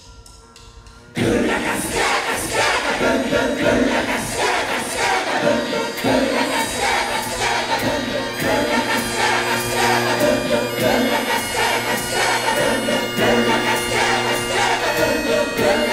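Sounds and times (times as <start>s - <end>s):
shouted group vocals: 1.2s - 15.9s
rock band playing: 6.0s - 15.9s.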